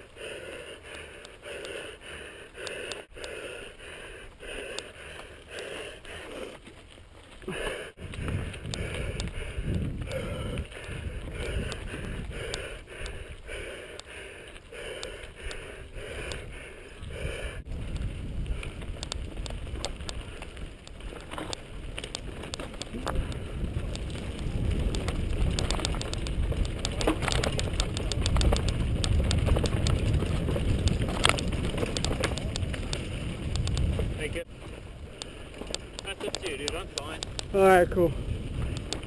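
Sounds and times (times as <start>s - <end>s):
tyres on dirt: 0.0s - 39.0s
wind on microphone: 8.0s - 13.6s, 15.4s - 36.0s, 36.9s - 39.0s
bike rattling over bumps: 17.6s - 39.0s.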